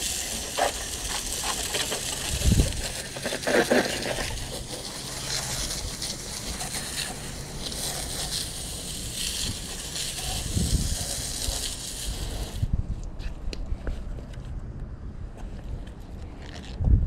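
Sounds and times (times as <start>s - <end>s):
hose spray splashing on metal: 0.0s - 12.7s.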